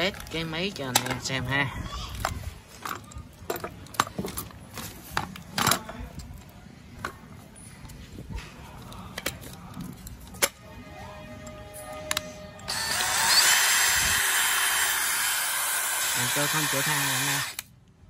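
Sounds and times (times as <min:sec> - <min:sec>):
cordless drill being handled: 0:12.7 - 0:17.7.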